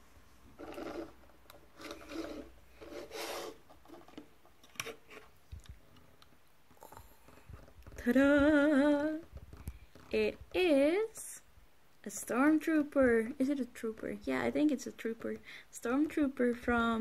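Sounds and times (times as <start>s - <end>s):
handling noise rubbing and scraping: 0.0s - 10.4s.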